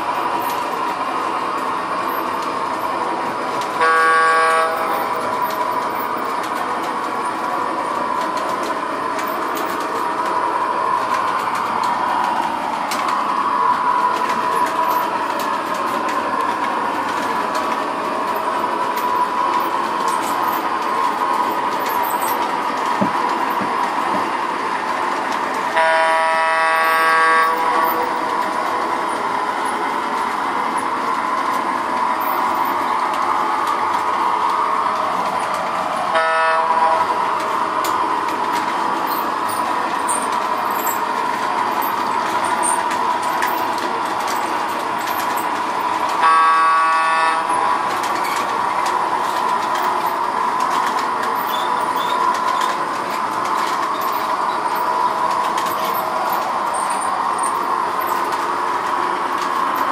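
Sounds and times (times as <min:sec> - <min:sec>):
toy train running on track: 0:00.0 - 0:59.9
toy train horn: 0:03.8 - 0:05.2, 0:25.7 - 0:28.2, 0:36.1 - 0:37.2, 0:46.1 - 0:47.7.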